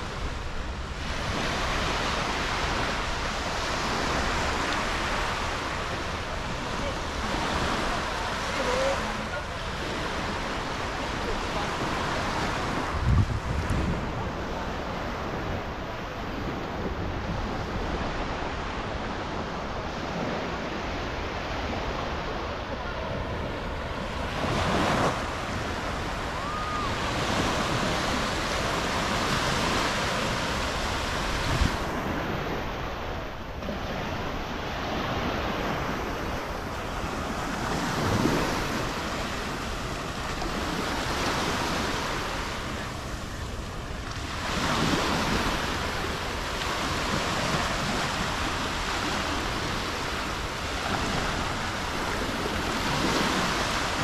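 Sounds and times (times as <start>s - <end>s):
sea waves washing onto beach: 0.0s - 54.0s.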